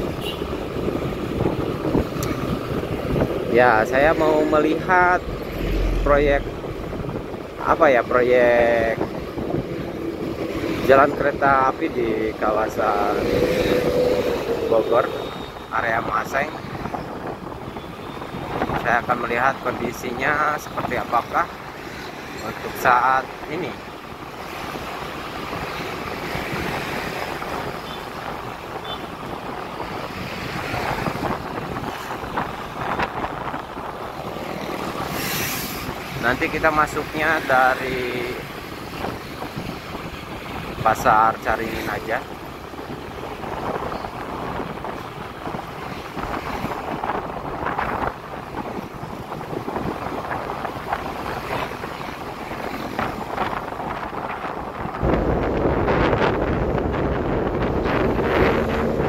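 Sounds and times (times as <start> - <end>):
wind rush on microphone: 0.0 - 59.0.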